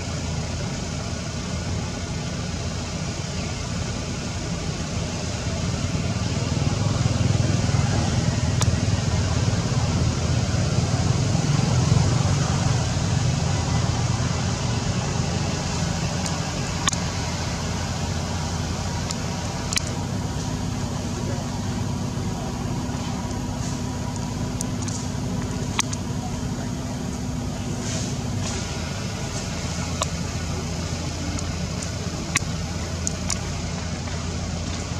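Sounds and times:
low hum: 0.0 - 34.9
low rumble and hiss: 0.0 - 34.9
sharp clicks: 16.1 - 17.1, 19.0 - 20.0, 24.0 - 26.2.

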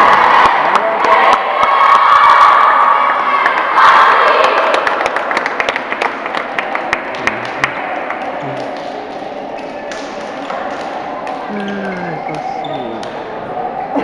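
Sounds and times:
crowd cheering: 0.0 - 14.0
hand claps and slaps: 4.4 - 13.2
murmur of voices: 6.0 - 14.0.

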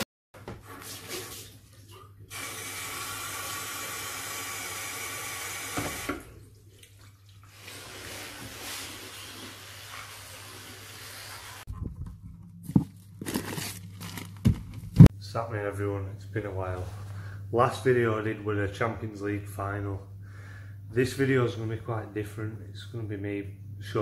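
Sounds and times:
tap water running into sink: 2.3 - 11.6
low steady hum: 11.7 - 24.0.

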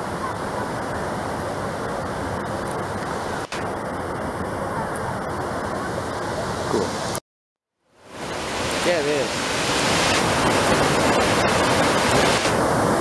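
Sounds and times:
waterfall rushing: 8.1 - 13.0.

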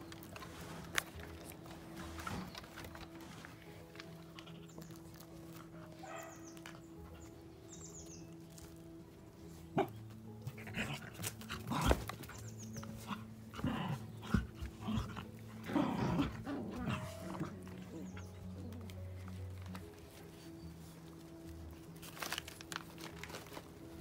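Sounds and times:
puppies yapping: 4.4 - 8.2.

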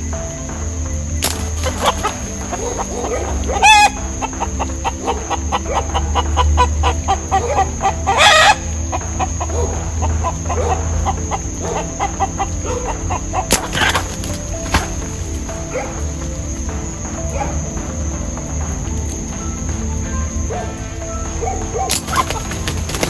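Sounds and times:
chickens squawking: 1.2 - 15.1, 21.4 - 23.0
chickens clucking: 1.2 - 16.2, 20.4 - 23.0.

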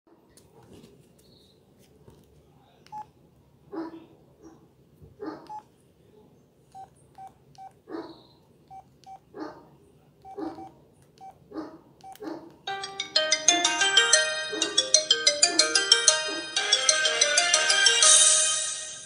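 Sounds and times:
phone key beeps: 10.2 - 11.4.

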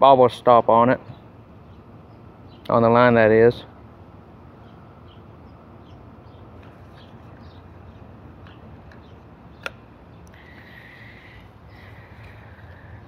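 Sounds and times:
sharp click: 9.6 - 10.4.

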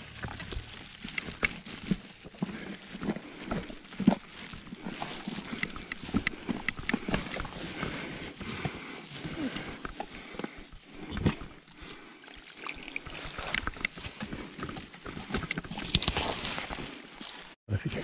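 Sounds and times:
plastic gloves rustling: 0.0 - 9.9, 16.0 - 17.6
wet handling noises: 0.0 - 17.6.

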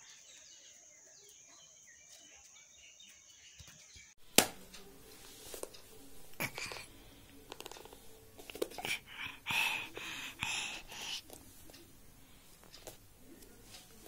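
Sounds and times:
bird chirps: 0.0 - 4.2.

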